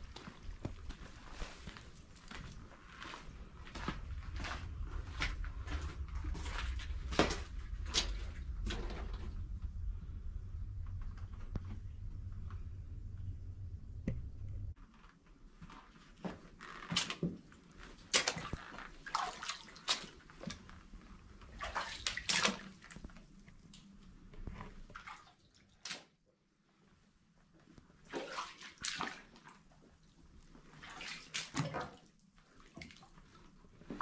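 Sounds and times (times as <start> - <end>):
low rumble: 3.3 - 14.8.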